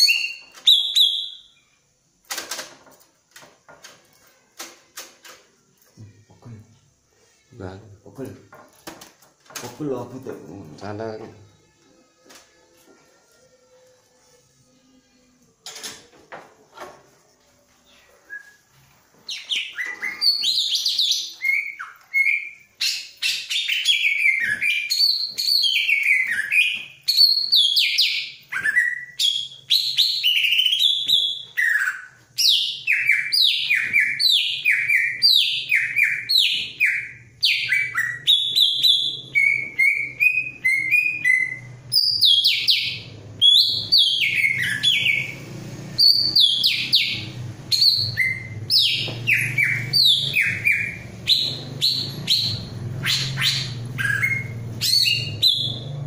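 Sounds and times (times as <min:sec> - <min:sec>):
bird singing whistled notes: 0:00.0 - 0:01.8, 0:17.9 - 0:45.4, 0:46.0 - 0:56.0.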